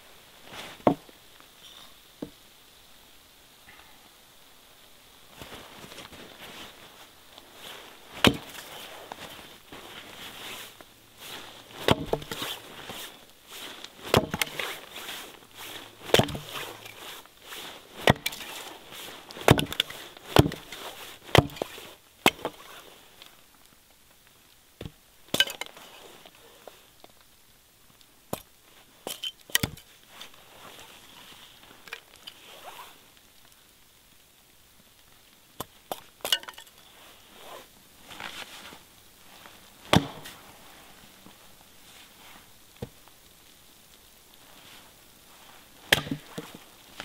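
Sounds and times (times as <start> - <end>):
hatchet chopping wood: 8.2 - 8.5, 11.8 - 12.5, 14.1 - 14.7, 16.1 - 16.7, 18.0 - 18.6, 19.4 - 20.7, 21.3 - 22.6, 39.9 - 40.3, 45.9 - 46.4.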